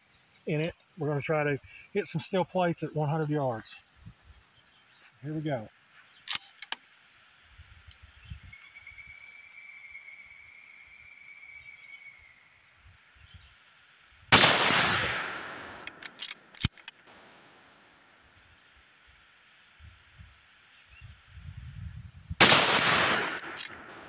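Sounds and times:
sharp clicks: 6.3s - 6.8s, 14.4s - 17.4s, 22.4s - 24.0s
rifle shot: 14.3s - 17.4s, 22.4s - 24.0s.

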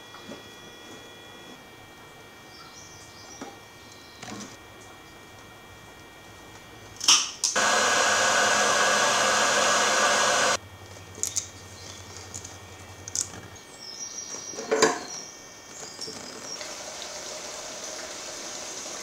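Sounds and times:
loud blowing hiss: 7.6s - 10.6s.

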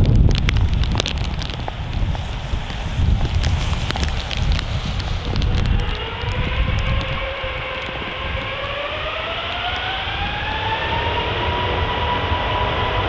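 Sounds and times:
jet engines spooling up: 4.7s - 13.0s.

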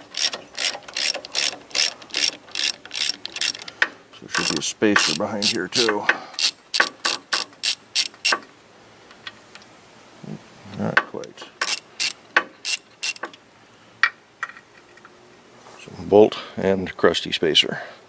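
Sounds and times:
socket ratchet clicking: 0.0s - 8.4s, 11.6s - 13.3s.

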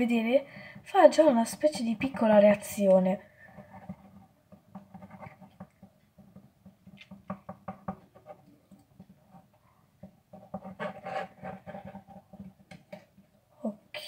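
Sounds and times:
stick scraping plastic container: 1.1s - 9.5s, 10.3s - 13.1s.

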